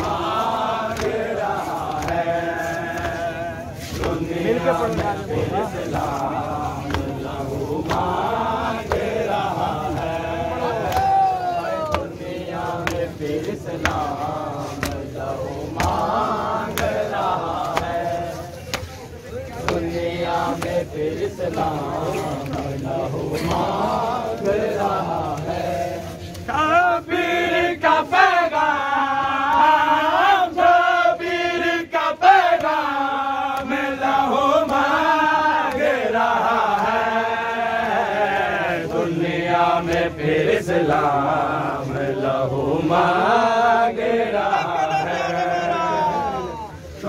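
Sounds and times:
man chanting a lament: 0.0 - 30.5, 40.3 - 47.0.

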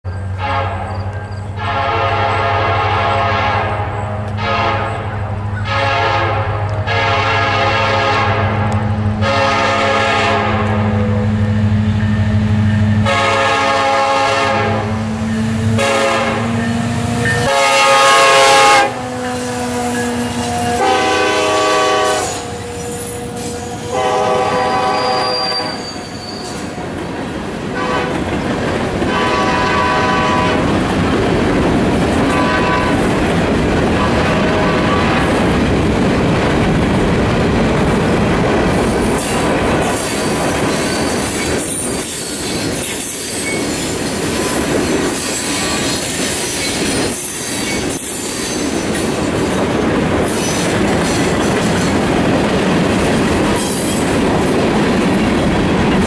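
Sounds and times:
locomotive air horn blasts: 0.4 - 26.8, 27.8 - 28.2, 29.1 - 30.8, 32.3 - 33.0, 34.0 - 35.4.

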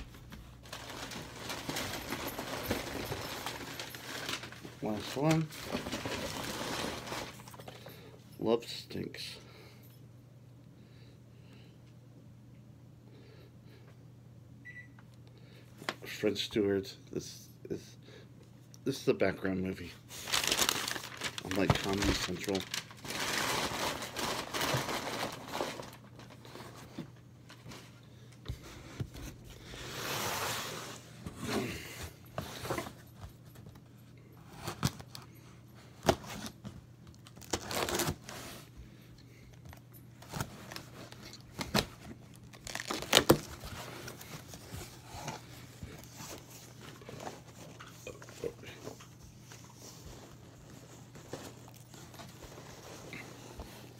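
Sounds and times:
packing material rustling: 0.0 - 7.8, 20.1 - 27.8, 35.9 - 38.7, 40.1 - 48.0
cardboard scraping: 29.1 - 33.0.

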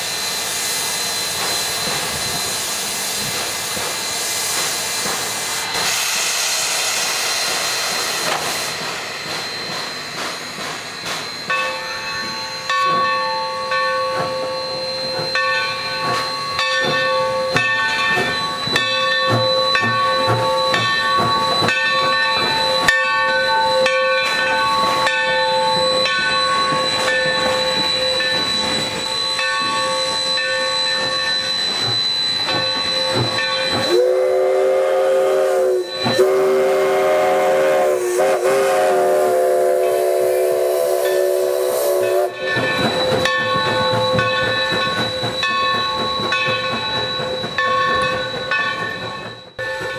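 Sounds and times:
locomotive bell ringing: 8.1 - 49.9
steam whistle blasts: 11.0 - 45.4.

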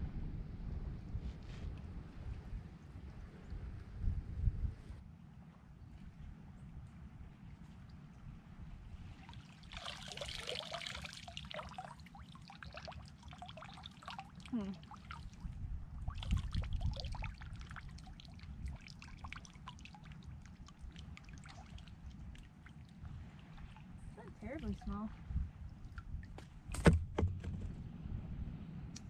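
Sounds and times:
low steady rumble: 0.0 - 29.0
water splashing: 9.0 - 27.6
water dripping off net: 9.6 - 15.4.

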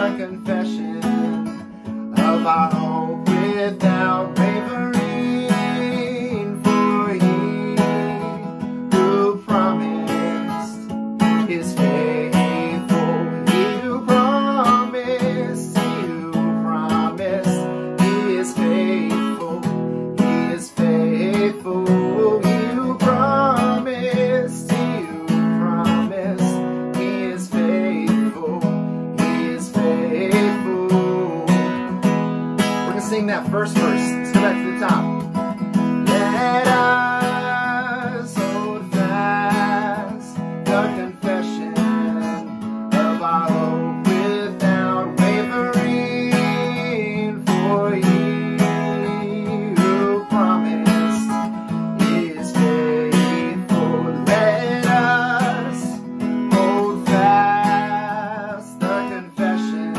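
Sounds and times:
acoustic guitar strumming: 0.0 - 59.9
man singing: 0.0 - 59.9.

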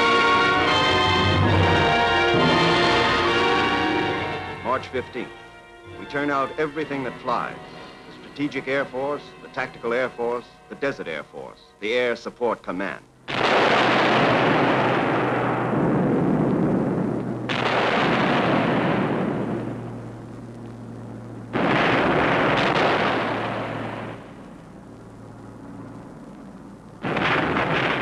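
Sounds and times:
bombs exploding: 13.3 - 28.0.

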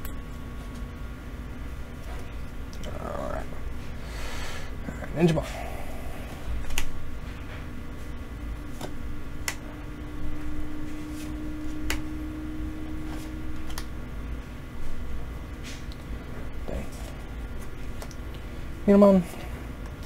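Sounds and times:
trading cards flicked by hand: 11.6 - 12.1.

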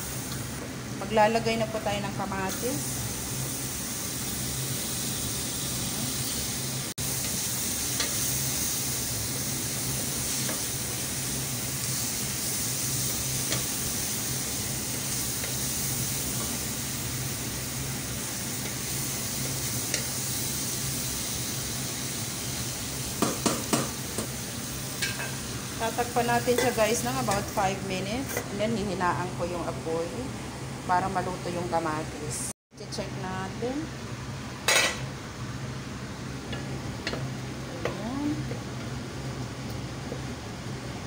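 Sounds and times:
vegetables sizzling in hot oil: 0.0 - 28.6.

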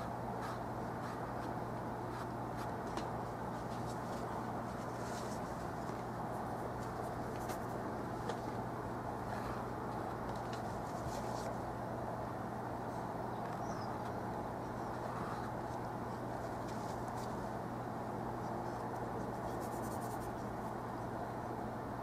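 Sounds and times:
room hum and hiss: 0.0 - 22.0
paintbrush scratching on canvas: 18.5 - 20.5.

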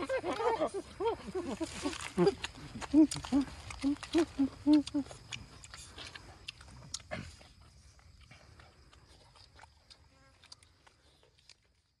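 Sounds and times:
people chewing: 0.0 - 12.0
mouth clicks: 1.9 - 7.4.

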